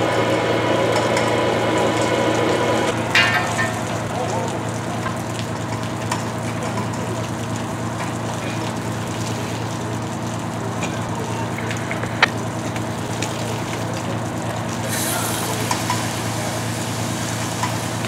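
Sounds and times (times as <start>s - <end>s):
diesel engine drone: 0.0s - 18.0s
hose water spraying: 2.2s - 18.0s
hiss of spray and steam: 14.8s - 18.0s.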